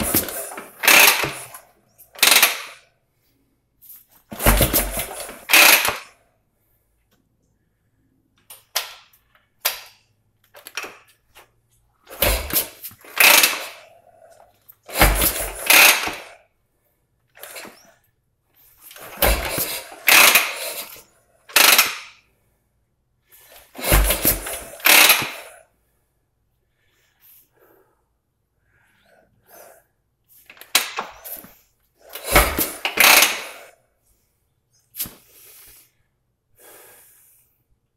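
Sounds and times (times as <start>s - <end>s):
motorcycle kick-start turning over: 0.0s - 1.6s, 2.2s - 2.8s, 4.3s - 6.1s, 12.1s - 13.9s, 14.8s - 16.4s, 17.4s - 17.8s, 18.9s - 22.2s, 23.6s - 25.6s, 32.1s - 33.7s.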